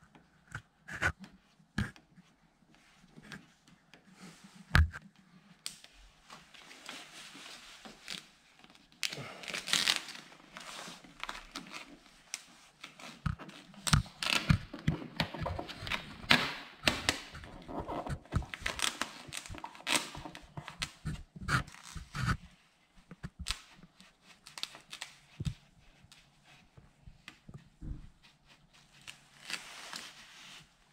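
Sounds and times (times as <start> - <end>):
vinyl film crinkling and rustling: 4.2 - 22.3
squeegee scratching: 16.9 - 22.5.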